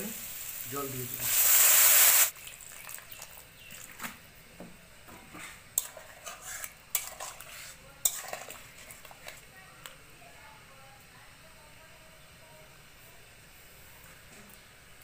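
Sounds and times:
water hissing in hot pan: 0:00.0 - 0:03.4
spatula scraping metal pan: 0:05.4 - 0:09.1.

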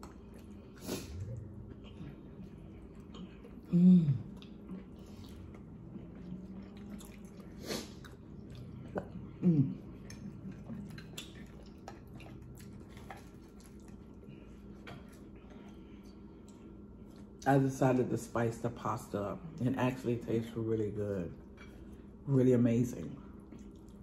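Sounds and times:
person chewing and slurping: 0:00.0 - 0:17.4
person humming: 0:03.7 - 0:04.3, 0:09.4 - 0:09.9.

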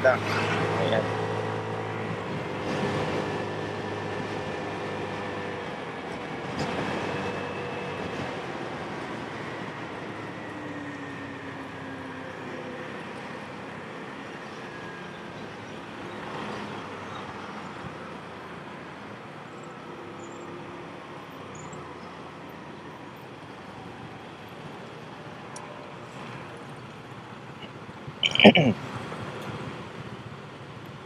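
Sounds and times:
motorcycle engine and road noise: 0:00.0 - 0:31.0.

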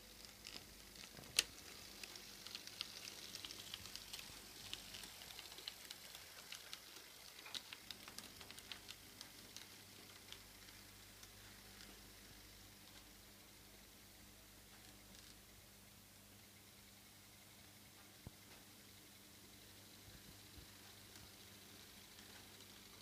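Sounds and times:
model train wheels clicking: 0:00.0 - 0:13.7, 0:19.5 - 0:23.0
faint steady hum: 0:00.0 - 0:23.0.

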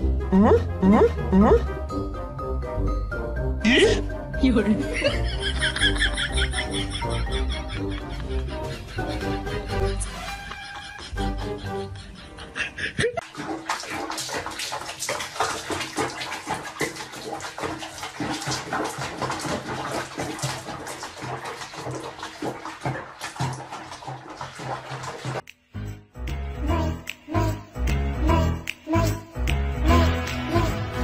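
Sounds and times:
water splashing in a basin: 0:13.2 - 0:25.5.

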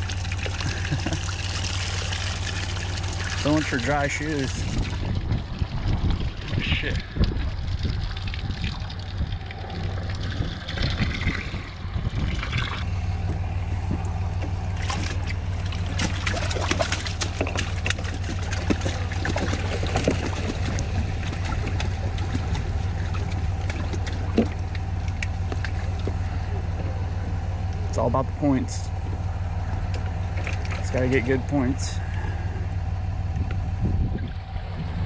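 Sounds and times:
water pouring from a mesh bag: 0:00.0 - 0:06.6
water dripping: 0:00.0 - 0:11.4, 0:29.7 - 0:31.2
low steady hum: 0:00.0 - 0:35.0.

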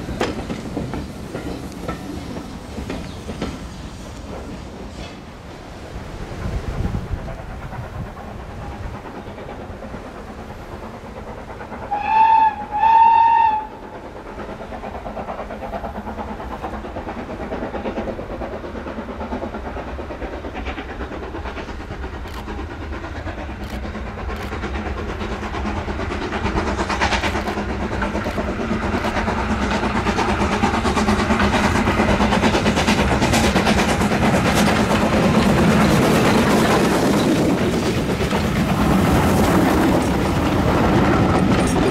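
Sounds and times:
steam train passing on rails: 0:00.0 - 0:41.9
steam locomotive whistle: 0:11.9 - 0:13.8.

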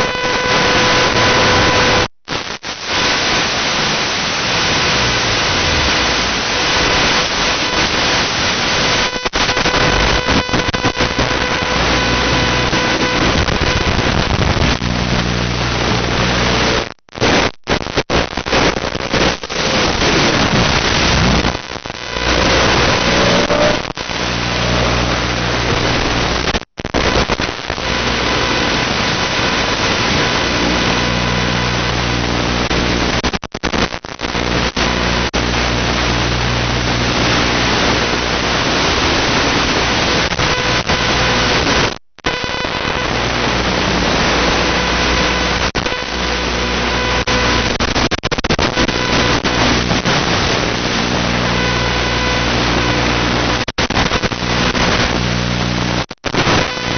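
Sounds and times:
loud static hiss: 0:00.0 - 0:56.9
low buzz: 0:02.8 - 0:16.9, 0:19.1 - 0:26.6.

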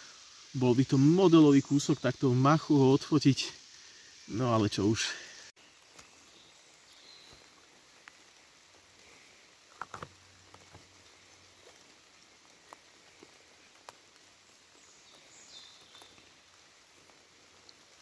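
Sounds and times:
faint steady hiss: 0:00.0 - 0:18.0
small clicks and crackles: 0:07.3 - 0:18.0.

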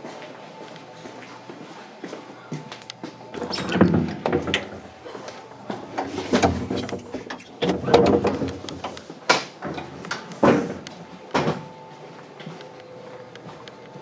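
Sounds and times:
train gangway doors sliding: 0:03.3 - 0:10.8
door panels knocking and banging: 0:05.8 - 0:09.0.

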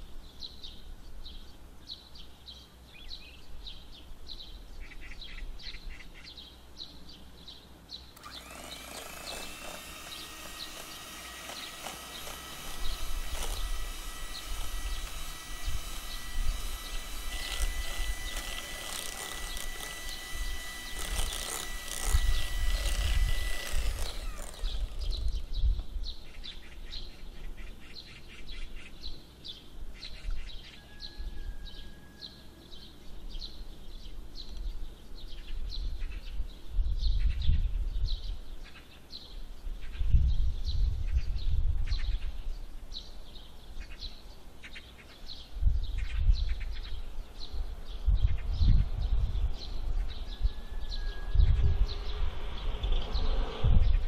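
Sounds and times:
electric hand mixer running: 0:08.2 - 0:25.4.

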